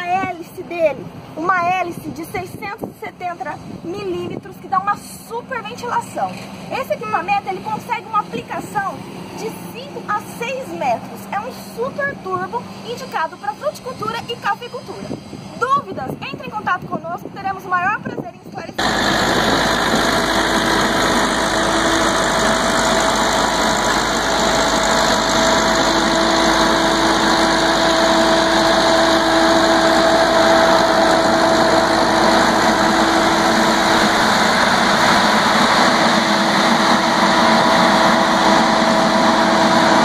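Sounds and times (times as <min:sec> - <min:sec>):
tractor engine hum: 0:18.7 - 0:40.0
sprayer fan rushing air: 0:18.8 - 0:40.0.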